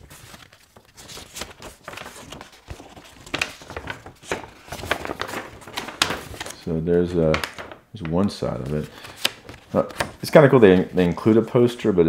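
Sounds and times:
paper poster rustling and crinkling: 0.0 - 12.0.

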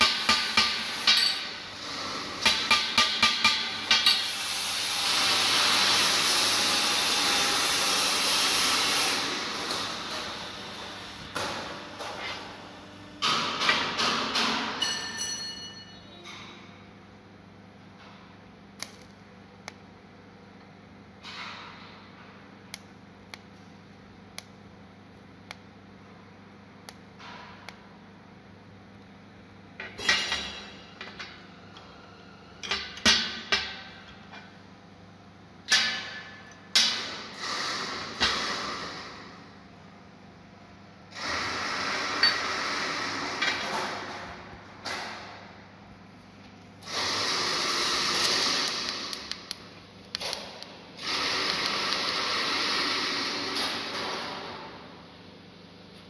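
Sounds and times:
short metallic ring: 14.8 - 16.2.

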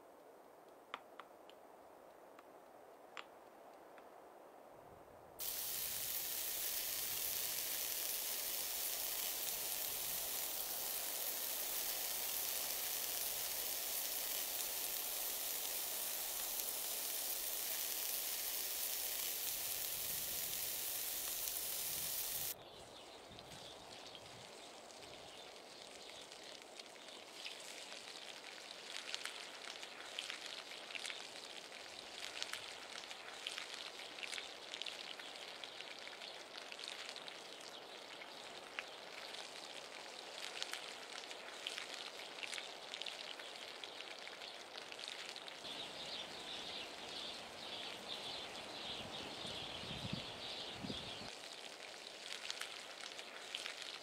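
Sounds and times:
butter sizzling in pan: 5.4 - 22.6, 51.4 - 54.0
chicken frying with crackling: 5.4 - 22.6, 23.3 - 54.0.

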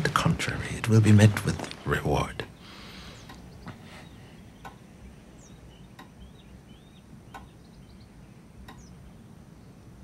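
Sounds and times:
soft clicks: 3.2 - 3.8, 4.6 - 4.8, 7.3 - 7.6, 8.6 - 8.9.

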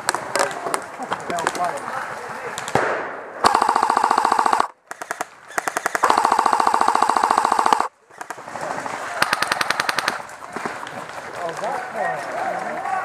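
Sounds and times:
airsoft rifle firing bursts: 2.8 - 7.9.

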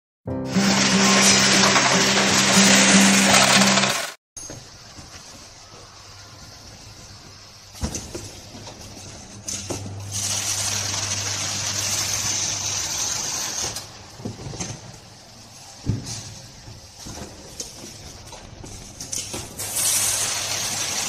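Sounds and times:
carton sealer machine humming: 0.4 - 4.2, 9.7 - 13.9
loud high hiss: 0.4 - 4.2.

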